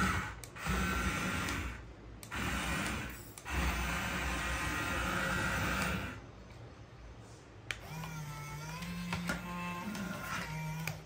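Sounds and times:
small electric motors whirring: 0.0s - 6.2s, 7.8s - 11.0s.

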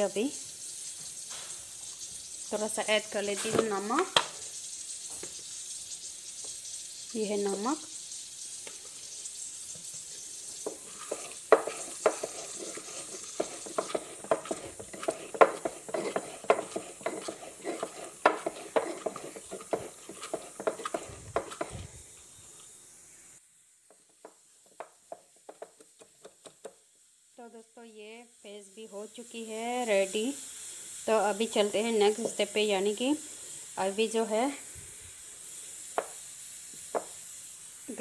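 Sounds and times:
pestle pounding in wooden mortar: 10.6s - 21.9s, 23.9s - 26.7s, 36.9s - 37.1s.

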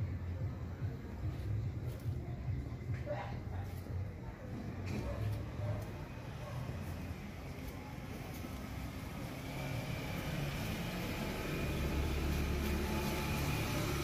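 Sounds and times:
low engine hum: 4.0s - 14.0s.

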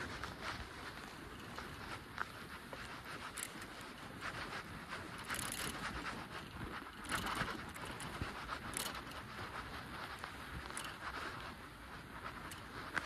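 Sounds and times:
bicycle parts rattling and clicking: 2.7s - 13.0s.

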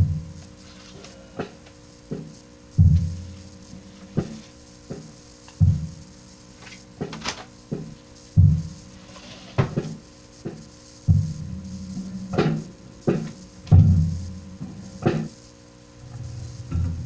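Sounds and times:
amplifier hum: 0.0s - 17.0s
electric guitar low thuds: 10.5s - 15.4s, 16.0s - 17.0s.

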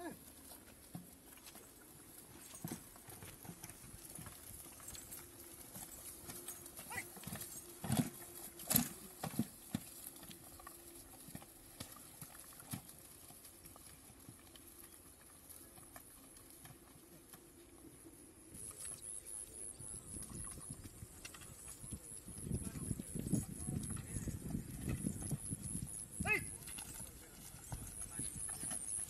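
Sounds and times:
hoof thuds: 0.4s - 14.9s.

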